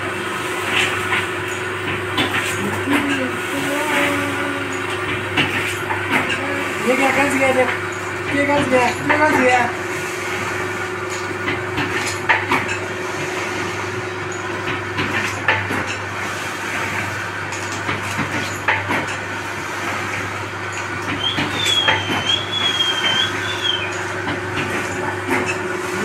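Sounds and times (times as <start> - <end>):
motor hum: 0.0 - 26.0
high wavering squeal: 21.2 - 24.0.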